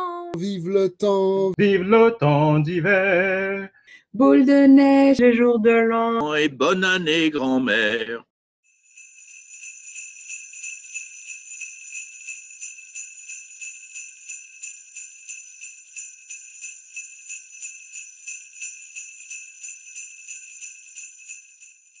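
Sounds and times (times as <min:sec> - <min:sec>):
jingle bells shaken: 0:08.7 - 0:22.0.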